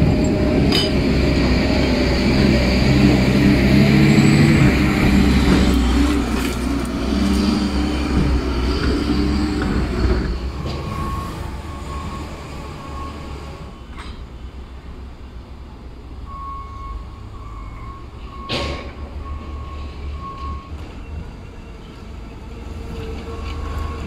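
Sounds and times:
wheel loader diesel engine: 0.0s - 24.0s.

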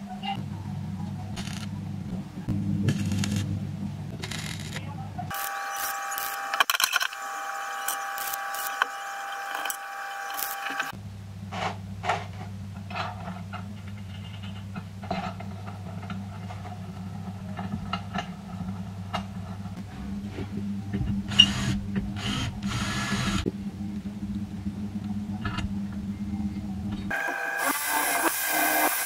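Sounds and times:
low steady hum: 0.0s - 5.5s, 6.2s - 27.2s
welding arc crackling buzz: 5.3s - 11.0s, 27.1s - 29.0s.

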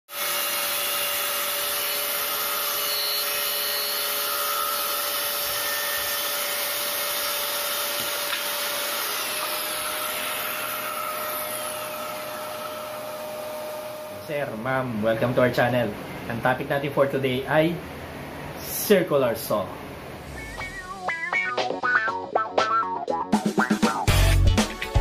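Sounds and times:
shop vacuum running: 0.1s - 15.2s
faint whine falling in pitch: 20.1s - 21.6s.

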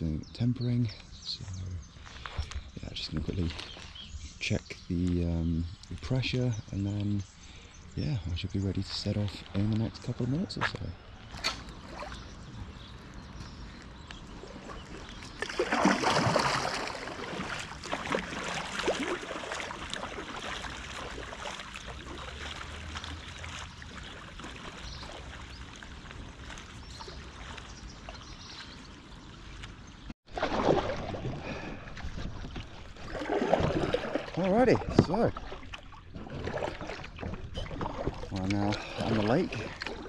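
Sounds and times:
water splashing around a raft: 11.3s - 12.8s, 14.3s - 40.0s.

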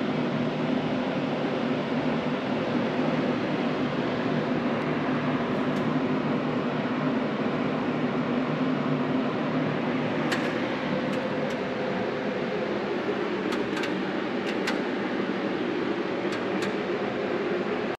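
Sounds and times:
mechanical hum: 0.0s - 17.9s
sharp click: 10.3s - 11.6s, 13.5s - 14.9s, 16.3s - 16.8s.

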